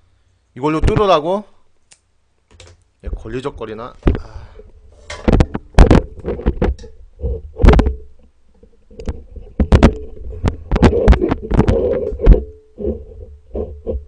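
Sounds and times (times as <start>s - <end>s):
plastic bottles clicking and knocking: 5.1s - 12.5s.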